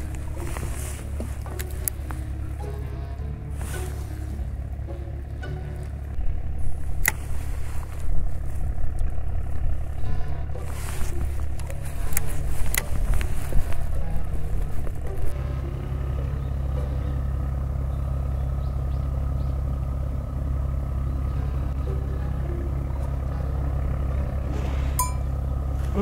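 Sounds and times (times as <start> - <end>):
boat engine rumble: 0.0 - 26.0.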